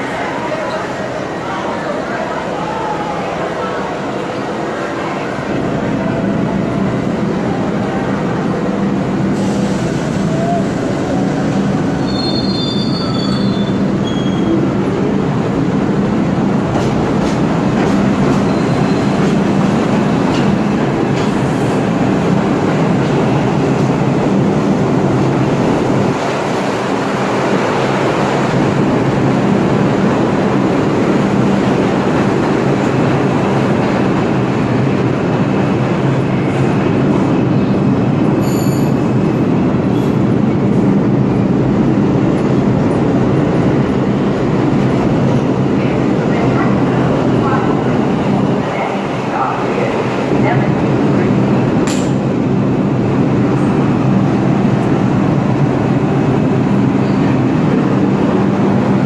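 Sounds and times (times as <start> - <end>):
train wheels on rails: 2.7 - 59.0
wheel squeals: 12.0 - 14.6.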